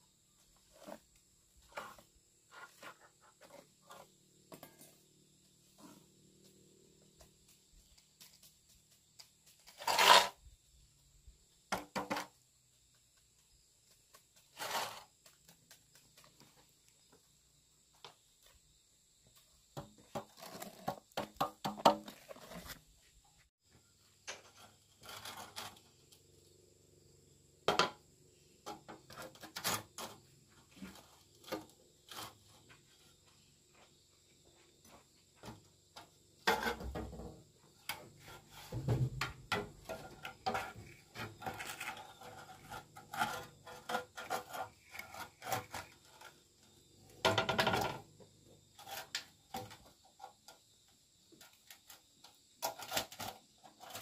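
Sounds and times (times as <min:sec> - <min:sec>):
hard objects knocking and scraping: 0:19.7 - 0:22.9, 0:35.4 - 0:46.5.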